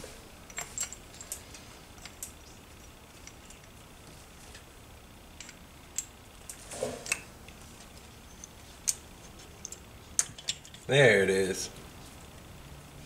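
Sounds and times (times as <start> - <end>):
small metal parts clicking: 0.4 - 3.8, 5.4 - 10.9.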